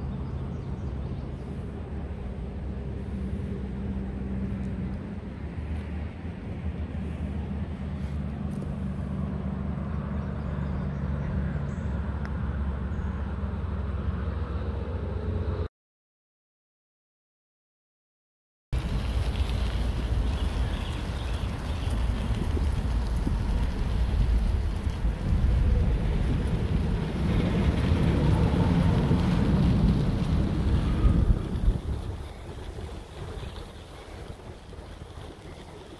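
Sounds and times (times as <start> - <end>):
bicycle tyres rolling on gravel: 18.8 - 35.9
wind buffeting microphone: 18.8 - 35.9.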